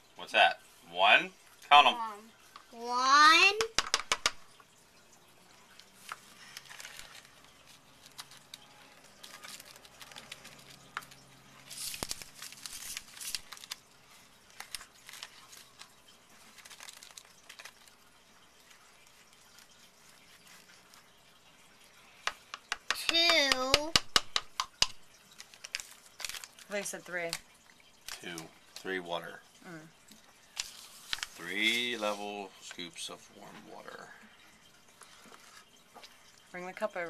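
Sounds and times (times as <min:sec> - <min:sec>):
scoop tapping plastic cup: 0:03.6 - 0:04.4, 0:22.3 - 0:25.0
plastic packet crinkling: 0:05.6 - 0:21.6, 0:25.1 - 0:29.0, 0:30.0 - 0:32.2.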